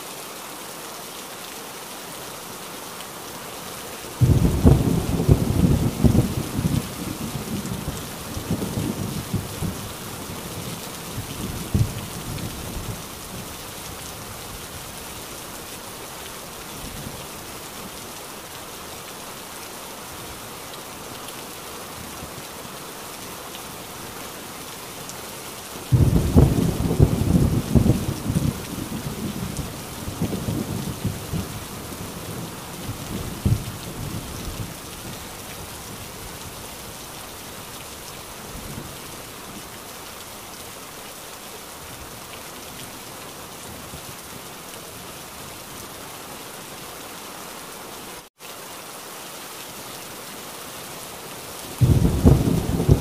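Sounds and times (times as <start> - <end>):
heavy rain falling: 0.0 - 53.0
thunder rumbling: 4.2 - 9.9, 25.9 - 34.8, 51.8 - 53.0
thunder clap: 51.8 - 53.0.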